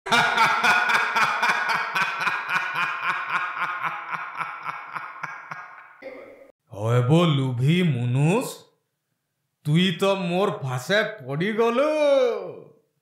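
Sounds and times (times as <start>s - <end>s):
cartoon villain laughing: 0.1s - 6.0s.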